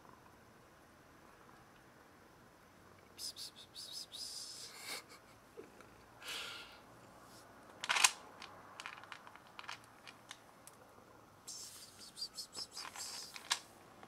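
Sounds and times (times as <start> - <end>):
kitten eating dry food clicks: 7.7 - 10.8
soft rustling: 11.5 - 14.0.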